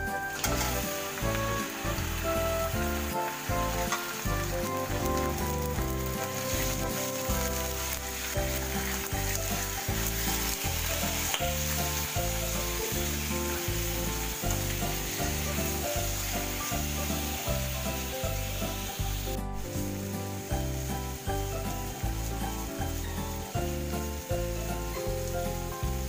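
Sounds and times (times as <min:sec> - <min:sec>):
background music with beat: 0:00.0 - 0:26.0
meat sizzling in frying pan: 0:00.0 - 0:26.0
spatula stirring in pan: 0:00.3 - 0:19.0.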